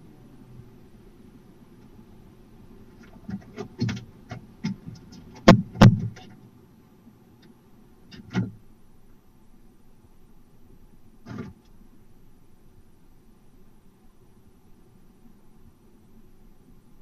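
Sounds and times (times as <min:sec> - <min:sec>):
loud thumps on wooden roof: 0:03.3 - 0:06.4.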